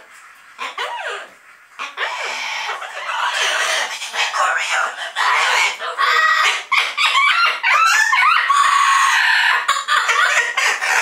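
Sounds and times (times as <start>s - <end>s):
parrot squawking and whistling: 1.9s - 9.6s.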